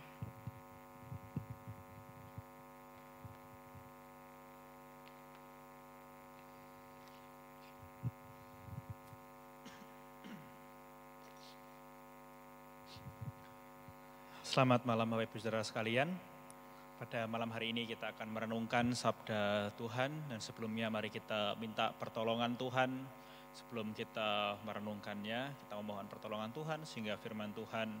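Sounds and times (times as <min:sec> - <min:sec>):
faint mains hum: 0:00.0 - 0:28.0.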